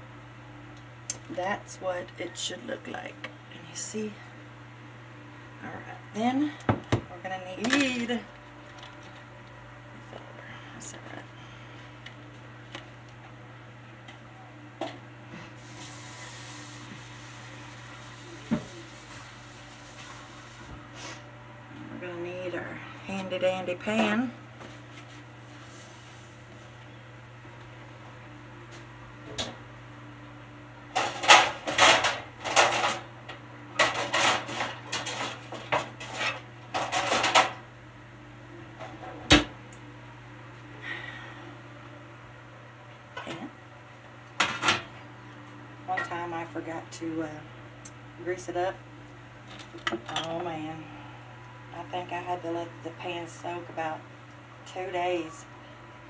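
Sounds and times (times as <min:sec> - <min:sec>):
kitchen knocks and clatters: 0:31.0 - 0:33.0, 0:33.8 - 0:37.6.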